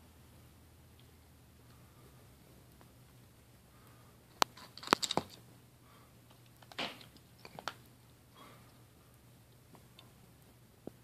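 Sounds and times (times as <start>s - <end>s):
cat crunching dry kibble: 4.3s - 5.5s, 6.3s - 8.0s.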